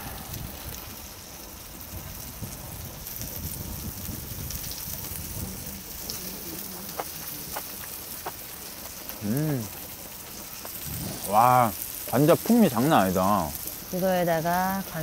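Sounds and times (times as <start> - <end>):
meat sizzling in a hot pan: 0.0 - 15.0.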